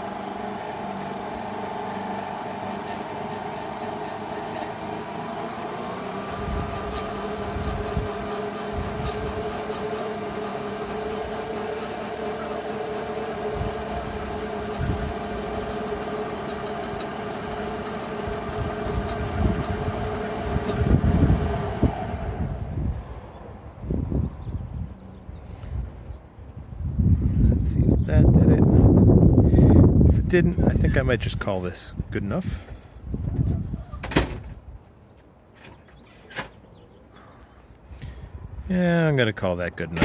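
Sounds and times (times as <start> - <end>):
lapidary machine humming: 0.0 - 23.5
shell rubbing on polishing pad: 6.3 - 21.0.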